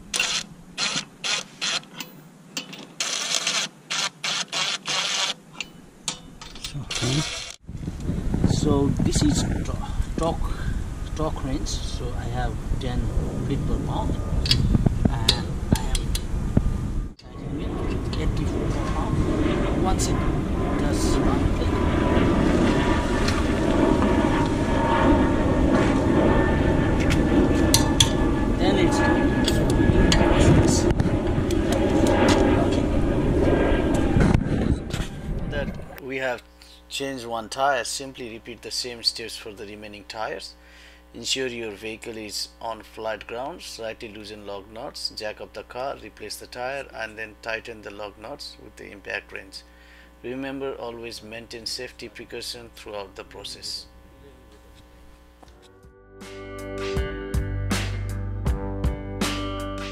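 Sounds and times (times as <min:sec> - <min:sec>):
faint hum: 0:04.6 - 0:55.8
low outdoor rumble: 0:05.4 - 0:55.6.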